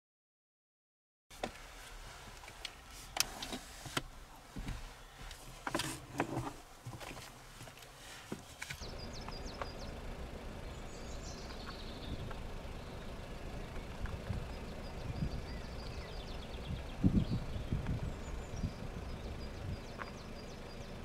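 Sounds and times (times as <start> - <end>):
small birds chirping: 4.2 - 5.8, 6.6 - 21.0
low rumble: 8.8 - 21.0.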